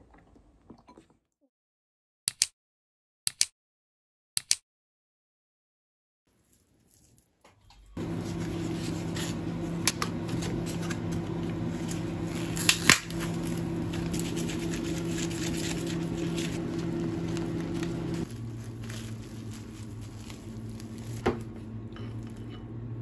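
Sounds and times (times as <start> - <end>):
steady appliance hum: 7.7 - 23.0
plastic packaging crackling: 8.0 - 22.4.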